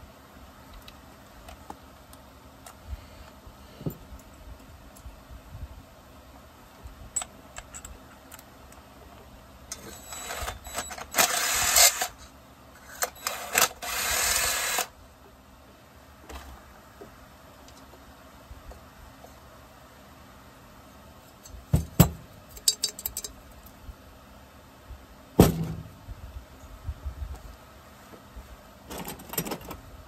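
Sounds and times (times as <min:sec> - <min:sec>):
cordless power driver running: 0:09.8 - 0:12.2, 0:13.0 - 0:14.9
light clicks of tools: 0:22.5 - 0:23.8.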